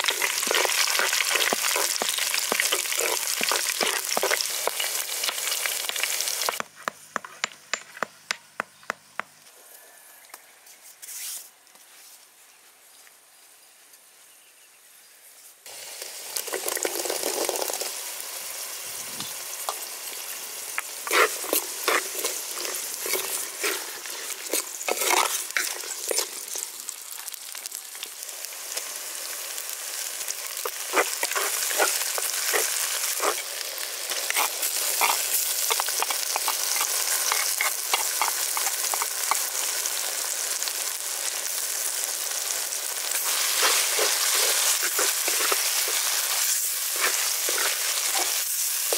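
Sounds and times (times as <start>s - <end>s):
food sizzling in hot oil: 0.0s - 6.6s, 15.6s - 48.9s
stirring scrapes and clicks: 0.1s - 4.8s, 21.0s - 26.4s, 30.6s - 33.4s, 34.1s - 39.5s, 43.6s - 48.4s.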